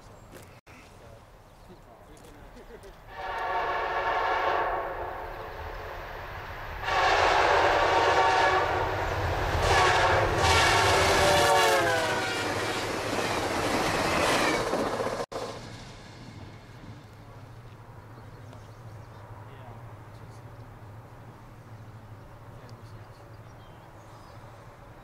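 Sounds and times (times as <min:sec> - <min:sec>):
train rumbling on rails: 0:02.8 - 0:25.0
train air horn blasts: 0:03.1 - 0:13.1.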